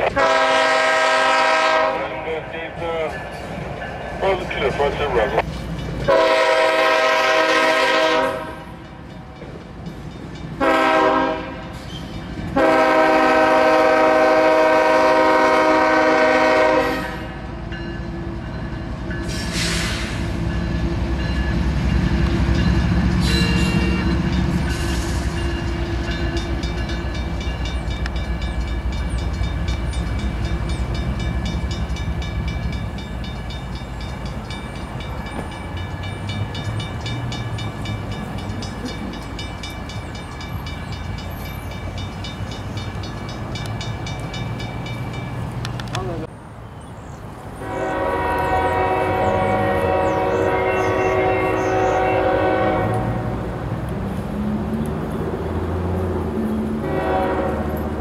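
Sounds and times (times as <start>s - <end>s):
locomotive horn blasts: 0.0s - 2.2s, 6.1s - 8.8s, 10.6s - 11.8s, 12.5s - 17.4s, 47.6s - 53.4s, 56.8s - 57.9s
locomotive engines rumbling: 0.0s - 58.0s
crossing bell ringing: 2.9s - 13.7s, 17.0s - 19.7s, 20.4s - 46.2s.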